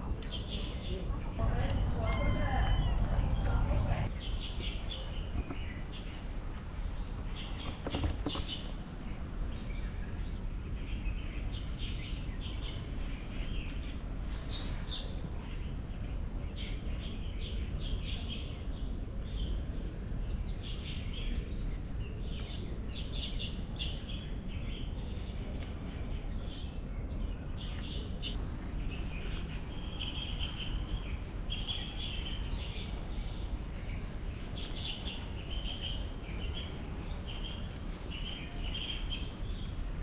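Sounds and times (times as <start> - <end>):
small birds chirping: 0.0 - 40.0
low rumble: 0.9 - 5.7.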